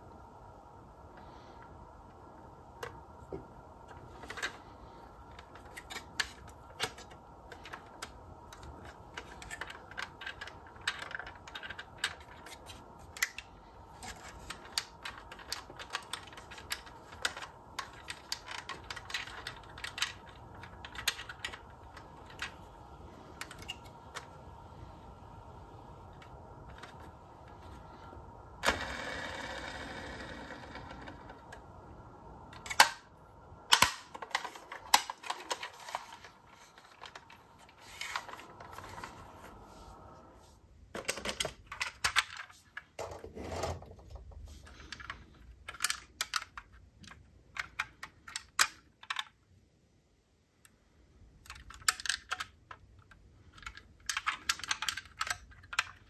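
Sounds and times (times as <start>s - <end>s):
metal model cars clicking: 51.4s - 56.0s.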